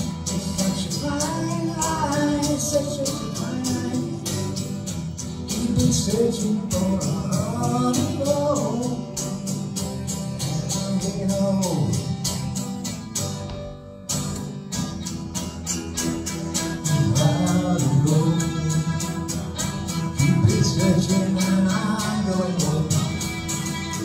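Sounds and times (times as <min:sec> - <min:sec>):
acoustic guitar strumming: 0:00.0 - 0:24.0
violin melody: 0:23.0 - 0:24.0.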